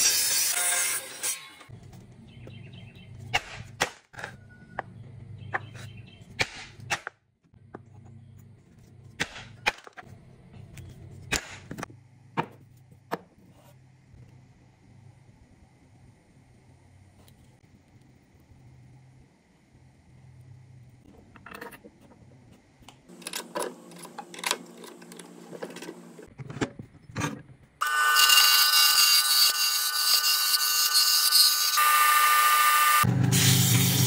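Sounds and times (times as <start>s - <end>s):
miter saw cutting wood: 27.8s - 34.0s.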